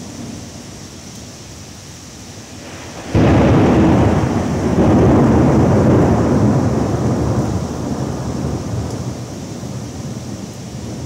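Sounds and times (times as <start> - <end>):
rain hissing: 0.0 - 11.0
thunder rumbling: 2.5 - 11.0.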